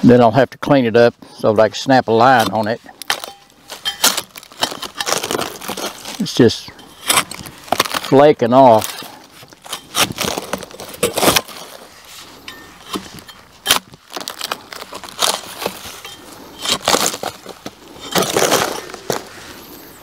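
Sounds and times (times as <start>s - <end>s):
tool scraping log: 1.6s - 19.8s
bark cracking off log: 2.3s - 6.2s, 7.0s - 11.9s, 12.9s - 19.3s.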